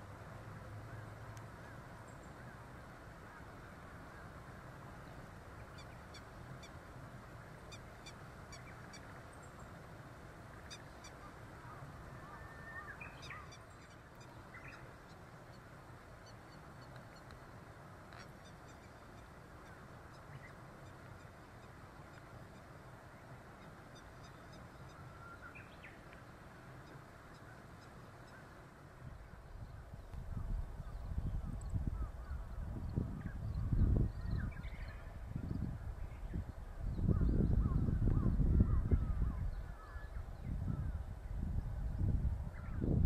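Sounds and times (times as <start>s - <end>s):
low background noise: 0.0s - 43.0s
distant wild birds calling: 7.7s - 9.8s, 10.6s - 17.5s, 23.5s - 26.1s.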